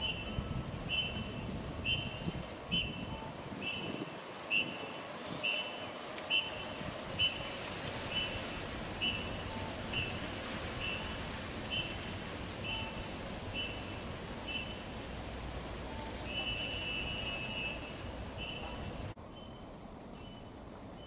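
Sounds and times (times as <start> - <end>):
whistle blasts: 0.0 - 10.2, 10.8 - 12.0, 12.6 - 14.8, 16.3 - 19.6.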